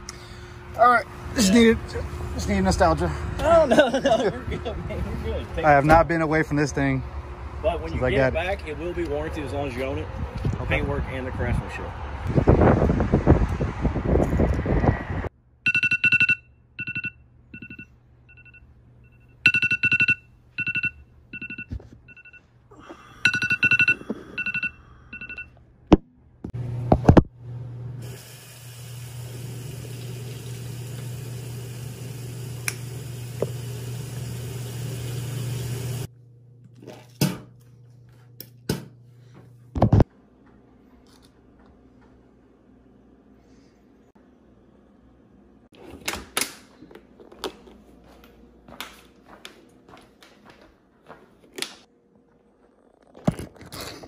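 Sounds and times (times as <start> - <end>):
short electronic beeps: 15.7 - 22.4, 23.2 - 25.5
shower running: 28.0 - 36.1.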